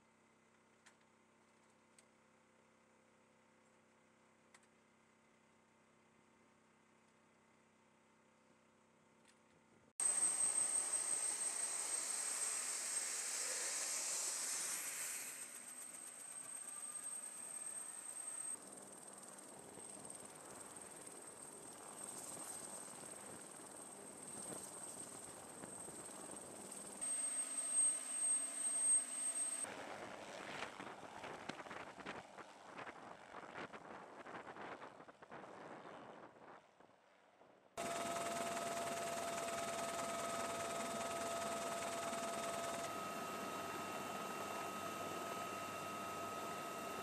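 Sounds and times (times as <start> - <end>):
helicopter turbine whine: 10.0 - 36.4, 37.8 - 47.0
rushing hiss: 11.2 - 16.0.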